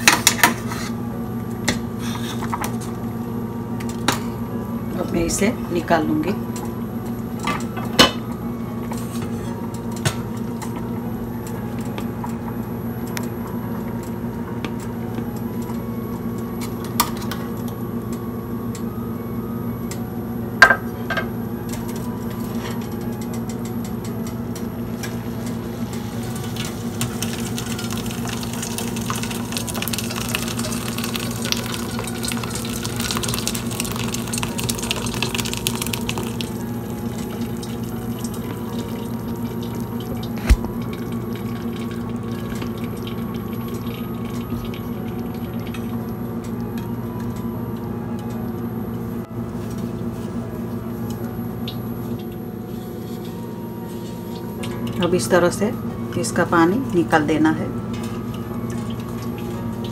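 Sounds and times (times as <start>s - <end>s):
steady hum: 0.0s - 59.9s
liquid pouring and splashing: 26.9s - 36.6s.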